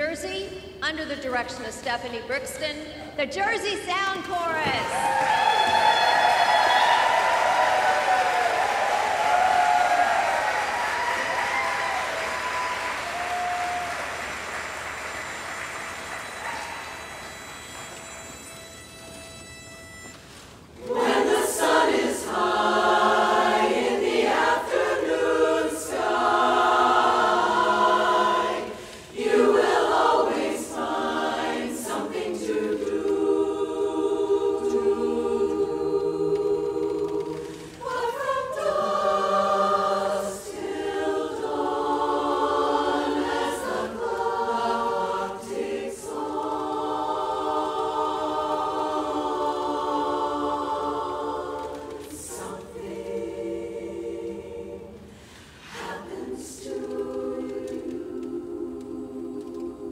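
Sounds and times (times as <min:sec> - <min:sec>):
women's chorus singing: 0:20.7 - 0:59.9.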